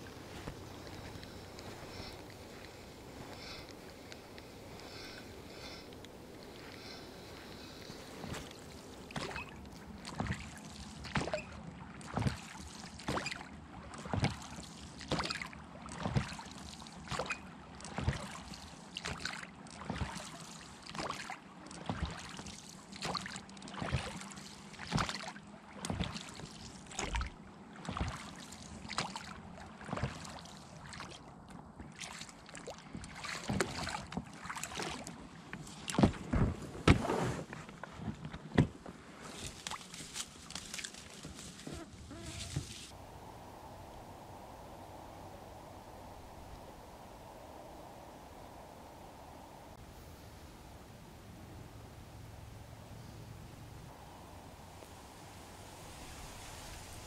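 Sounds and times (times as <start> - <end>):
boat rustling against grass: 0.0 - 11.4, 35.1 - 50.8
oars splashing and knocking: 0.0 - 41.8.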